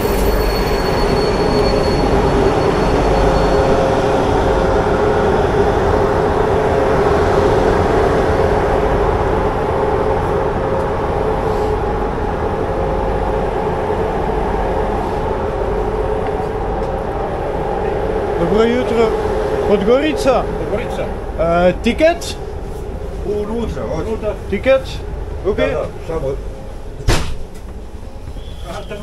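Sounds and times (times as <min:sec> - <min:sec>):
high wheel squeal: 0:00.0 - 0:04.6, 0:28.2 - 0:29.0
train rumbling on rails: 0:00.0 - 0:29.0.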